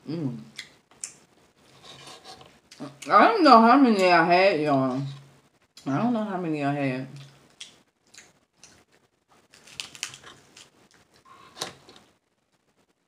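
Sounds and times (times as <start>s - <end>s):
crab shell cracking: 7.5s - 11.2s.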